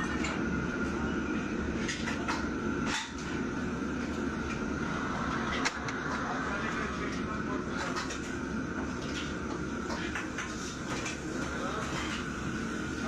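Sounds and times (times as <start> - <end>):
wok burners roaring: 0.0 - 13.0.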